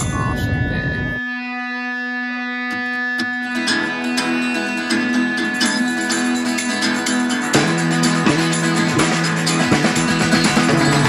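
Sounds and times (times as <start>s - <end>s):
plucked guitar music: 0.0s - 11.0s
bass part: 7.6s - 11.0s.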